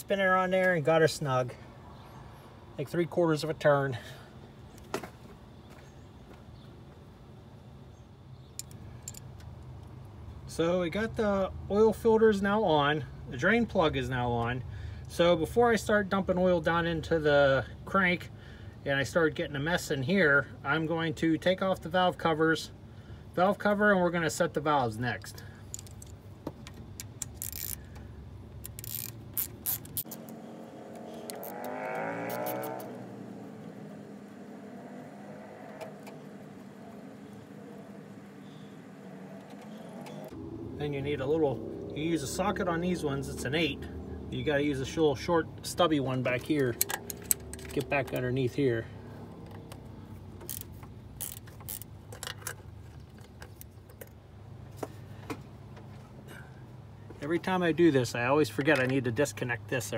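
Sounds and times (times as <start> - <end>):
ratchet wrench clicking: 25.7 - 26.2, 27.0 - 28.0, 28.6 - 30.4, 31.0 - 31.7, 50.4 - 52.6
passing vehicle engine: 28.9 - 50.5.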